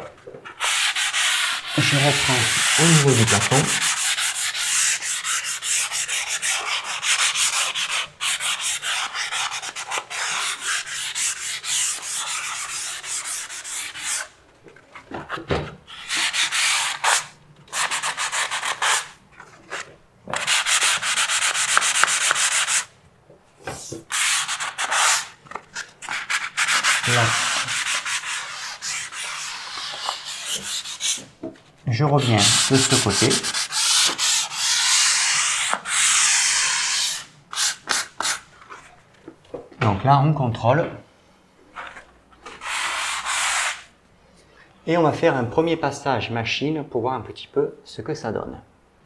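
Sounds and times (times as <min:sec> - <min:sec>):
sanding pad scratching a wall: 0:00.6 - 0:14.3, 0:20.4 - 0:22.9, 0:24.1 - 0:25.3, 0:26.1 - 0:31.2, 0:32.2 - 0:38.4, 0:42.6 - 0:43.9.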